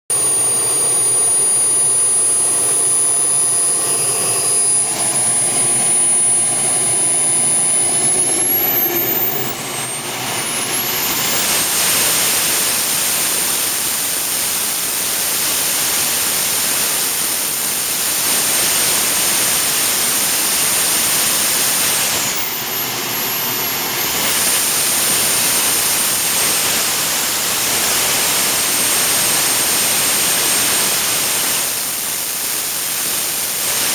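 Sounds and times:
jet engine roar: 0:00.1 - 0:12.9
high-pitched turbine whine: 0:00.1 - 0:33.9.

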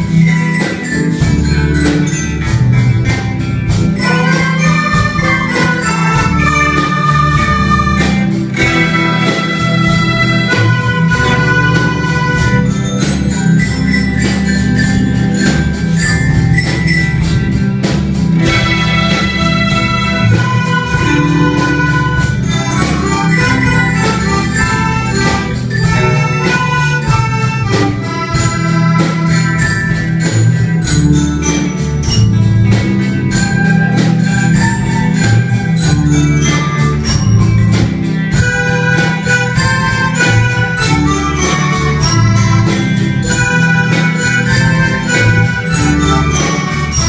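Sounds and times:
melodicas playing melody: 0:00.0 - 0:47.0
recorders guitars and keyboard: 0:00.0 - 0:47.0
steady beat: 0:00.0 - 0:47.0.

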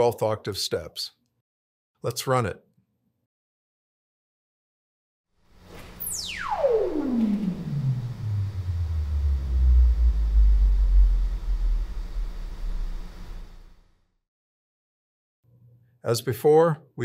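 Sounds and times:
stepped sine sweep tone: 0:05.6 - 0:14.0.

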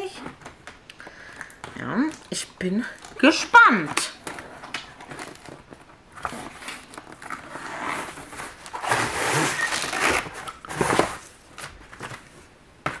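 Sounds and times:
cardboard packaging rustling: 0:03.0 - 0:13.0.

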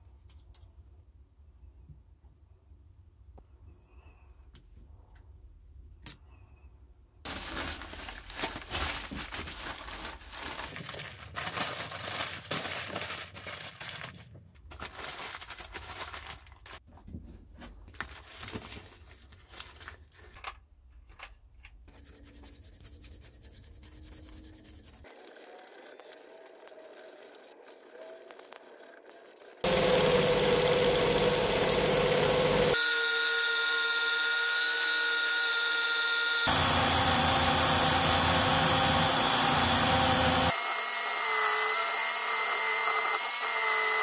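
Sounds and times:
newspaper crinkling and rustling: 0:07.3 - 0:16.8, 0:17.6 - 0:20.4, 0:26.2 - 0:29.6
paper tearing: 0:07.3 - 0:16.8.

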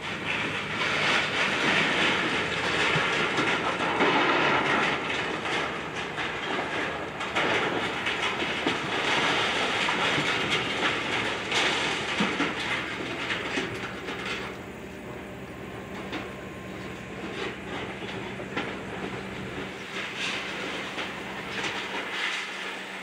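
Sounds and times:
debris crunching and rattling: 0:00.0 - 0:23.0
excavator engine running: 0:00.0 - 0:23.0.

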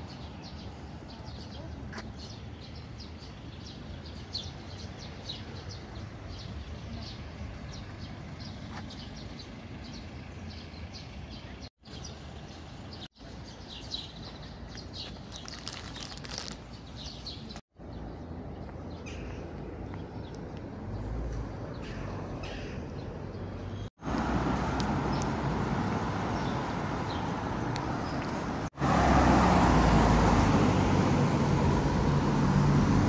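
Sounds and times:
small birds chirping: 0:00.0 - 0:23.9, 0:26.2 - 0:28.6
city background hum: 0:00.0 - 0:33.0
street traffic: 0:00.0 - 0:33.0.

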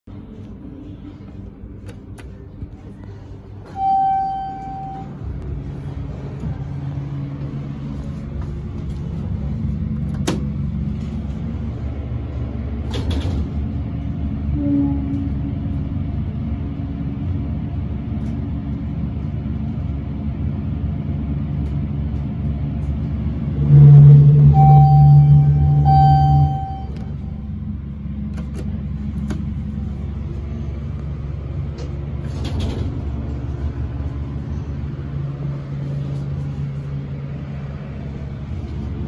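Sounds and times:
elevator rumble and hum: 0:00.0 - 0:39.0
elevator chime: 0:03.6 - 0:05.4, 0:23.7 - 0:27.4.

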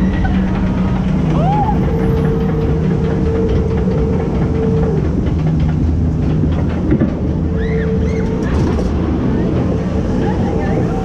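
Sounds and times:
constant droning hum: 0:00.0 - 0:11.0
mechanical clatter and rattle: 0:00.0 - 0:11.0.

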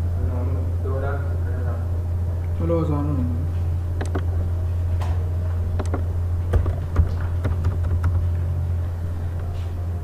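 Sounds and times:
steady low hum: 0:00.0 - 0:10.0
keyboard and mouse clicks: 0:04.0 - 0:04.3, 0:05.8 - 0:08.2.

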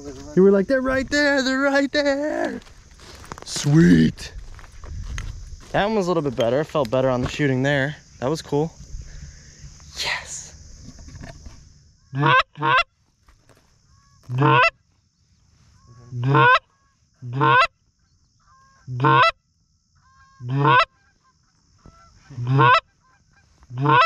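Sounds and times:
faint goose honks: 0:12.1 - 0:12.9, 0:13.9 - 0:14.8, 0:15.8 - 0:17.7, 0:18.4 - 0:19.4, 0:20.0 - 0:24.0
goose call honks: 0:12.1 - 0:12.9, 0:14.0 - 0:14.8, 0:16.0 - 0:17.7, 0:18.4 - 0:19.4, 0:20.0 - 0:24.0.

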